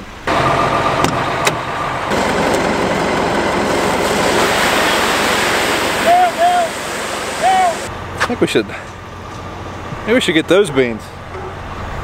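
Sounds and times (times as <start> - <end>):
forklift engine running: 0.2 - 8.2.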